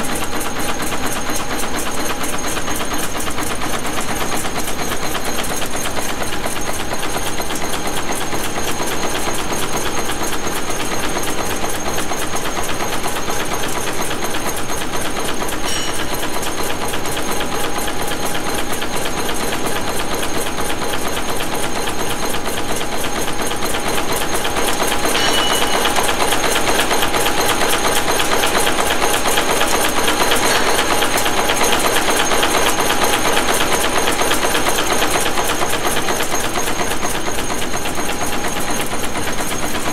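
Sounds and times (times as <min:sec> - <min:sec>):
nail machine metallic clatter: 0:24.6 - 0:34.3.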